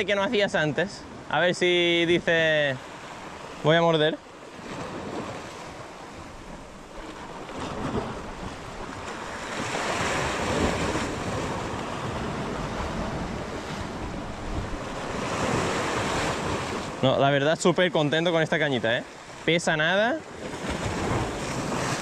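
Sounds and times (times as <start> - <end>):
waves breaking on rocks: 0.0 - 22.0
wind buffeting microphone: 4.6 - 17.0.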